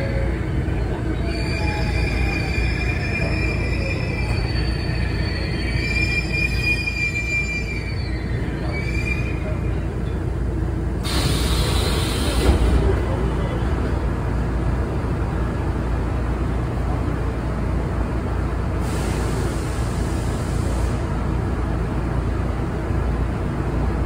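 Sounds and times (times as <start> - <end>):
hiss of air: 11.0 - 12.7, 18.8 - 21.1
doors hissing open: 11.0 - 12.9.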